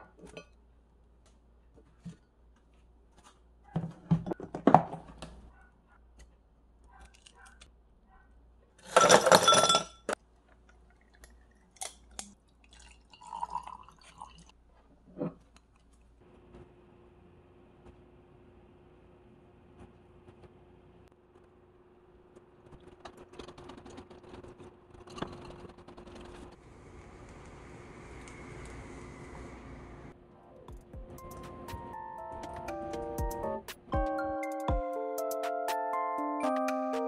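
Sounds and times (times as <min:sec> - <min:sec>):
ice cubes clattering into glass: 0:08.8 - 0:10.1
kitchen clatter: 0:08.8 - 0:10.2.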